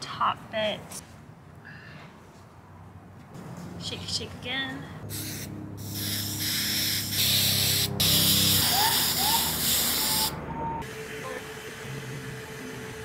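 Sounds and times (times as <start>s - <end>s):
aerosol can spraying: 5.1s - 10.3s.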